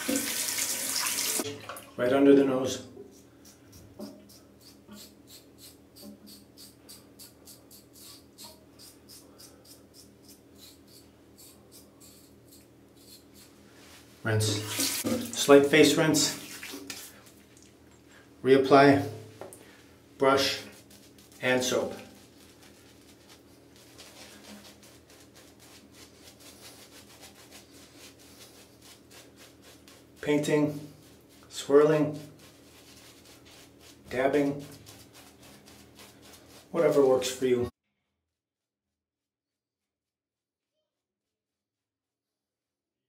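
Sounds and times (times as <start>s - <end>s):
shaving brush strokes: 3.0s - 17.5s, 20.4s - 37.5s
razor scraping stubble: 3.1s - 13.6s, 20.4s - 37.3s.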